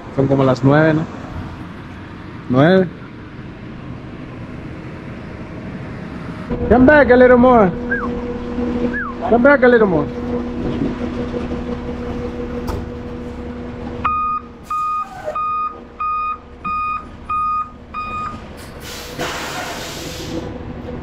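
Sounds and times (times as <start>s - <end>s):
diesel engine running: 0.0s - 21.0s
backup alarm beeping: 7.7s - 9.2s, 14.0s - 18.4s
air brake hiss: 18.6s - 20.5s.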